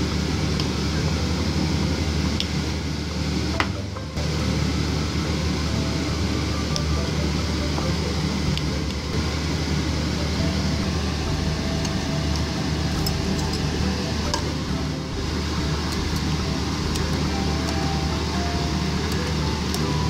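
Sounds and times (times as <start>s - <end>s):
faint background music: 0.0s - 20.0s
steady low hum: 0.0s - 20.0s.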